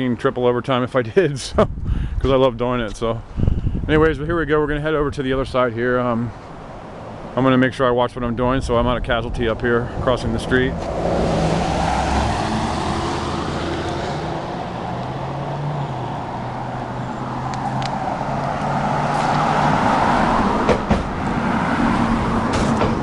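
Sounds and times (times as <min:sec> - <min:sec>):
car approaching: 0:08.5 - 0:23.0
pickup truck passing: 0:09.5 - 0:23.0.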